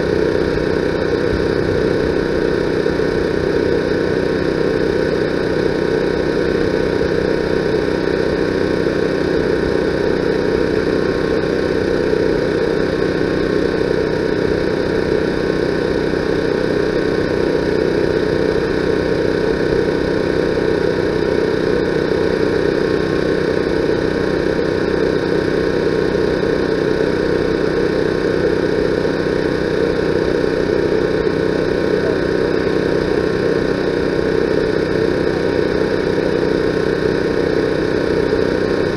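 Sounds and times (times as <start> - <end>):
mechanical drone: 0.0 - 38.9.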